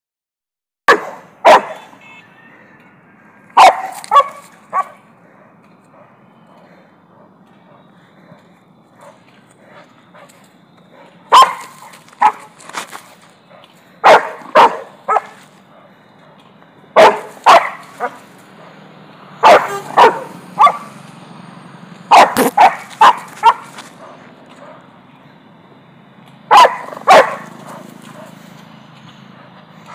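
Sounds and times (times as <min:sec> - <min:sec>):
dog barking: 0:00.9 - 0:01.9, 0:03.5 - 0:09.3, 0:10.2 - 0:12.6, 0:13.5 - 0:16.4, 0:17.0 - 0:18.8, 0:19.4 - 0:20.9, 0:22.1 - 0:24.9, 0:26.5 - 0:28.4.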